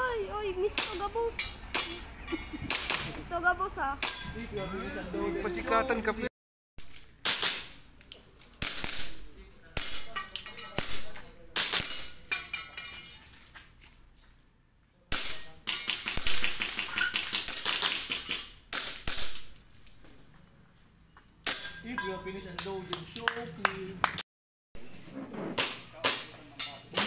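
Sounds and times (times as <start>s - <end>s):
airsoft pistol shots: 8.6s - 10.1s, 18.7s - 19.5s.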